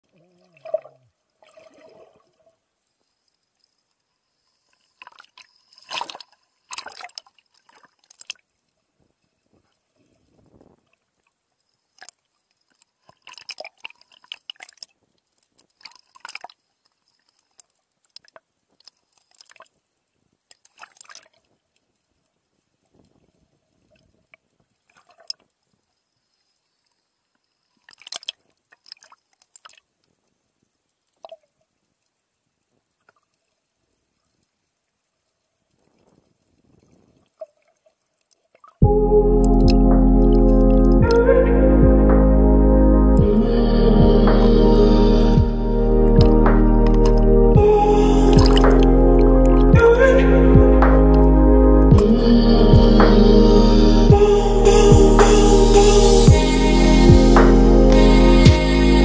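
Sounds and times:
seawater sloshing and splashing: 0.2 - 2.6, 5.0 - 8.7, 20.5 - 21.5.

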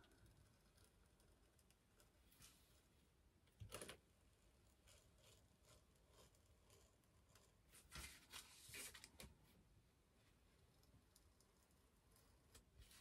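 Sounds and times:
craft knife scratching: 4.8 - 8.1.

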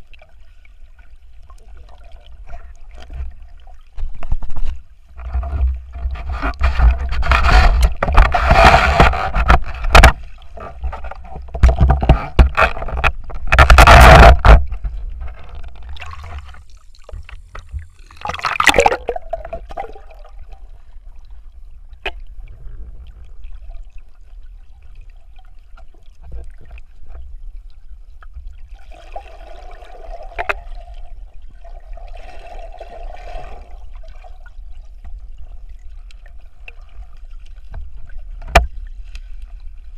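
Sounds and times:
underwater water rushing: 0.0 - 39.9
diver's gear scraping and knocking: 4.0 - 16.5.

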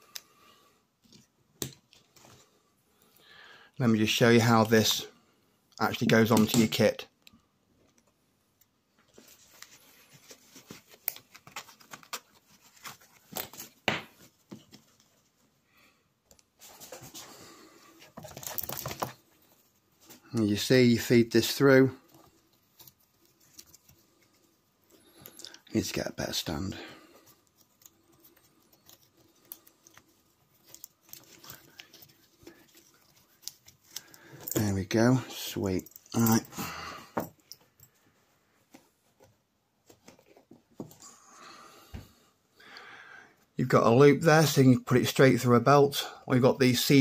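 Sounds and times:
strap rustling through buckle: 9.0 - 15.6, 16.2 - 20.4, 21.4 - 36.5.

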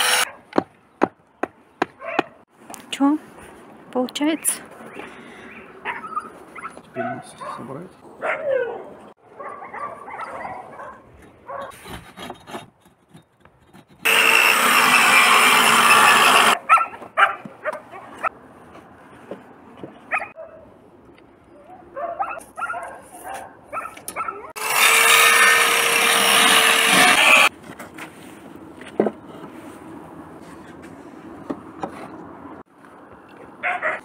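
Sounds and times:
electric saw cutting wood: 0.0 - 0.3, 14.0 - 16.6, 24.6 - 27.5.

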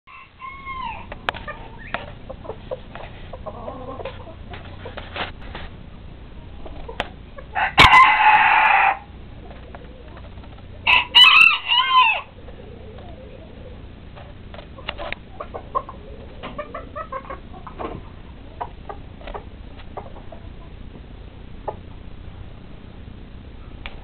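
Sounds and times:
roosters crowing: 0.1 - 4.6, 7.4 - 14.1
chickens clucking: 0.1 - 22.0.

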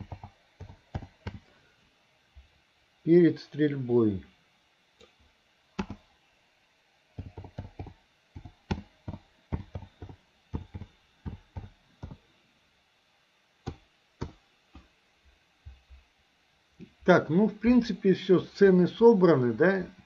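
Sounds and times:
keyboard typing: 0.0 - 1.5, 5.8 - 6.0, 7.2 - 12.2.

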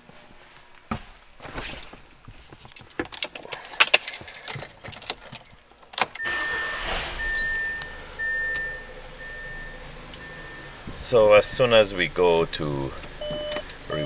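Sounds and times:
car keys jangling: 2.5 - 10.9
car warning chime: 6.1 - 12.2, 13.2 - 14.0.

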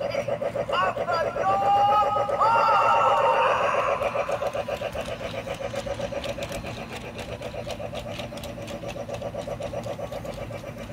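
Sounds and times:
toy train chugging: 0.0 - 10.9.

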